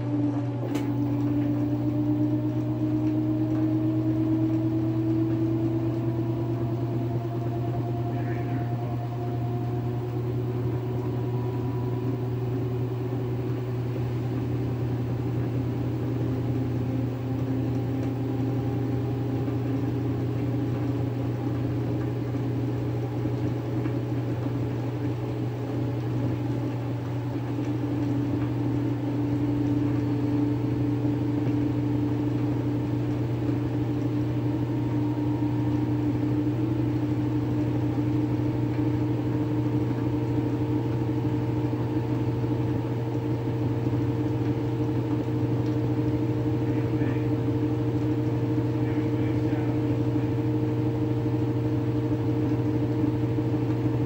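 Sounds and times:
washing machine spin cycle whirring: 0.0 - 54.0.

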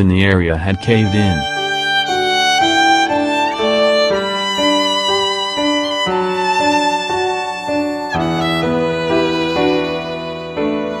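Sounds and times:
violin melody: 0.0 - 11.0.

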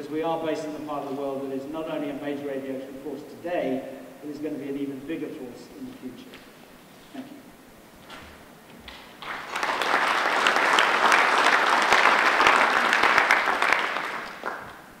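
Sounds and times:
audience applauding: 8.9 - 15.0.

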